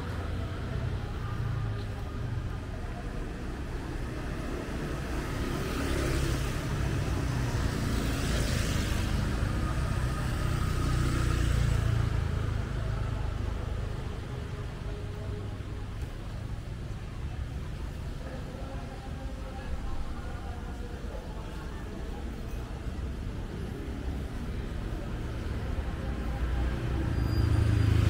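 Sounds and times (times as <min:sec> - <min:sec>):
vehicle passing by: 0:25.9 - 0:28.0.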